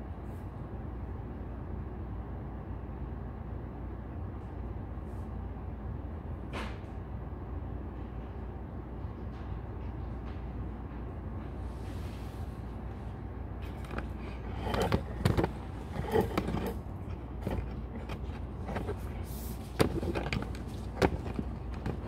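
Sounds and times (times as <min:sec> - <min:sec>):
steady low hum: 0:00.0 - 0:22.0
goats knocking plastic tub: 0:17.4 - 0:22.0.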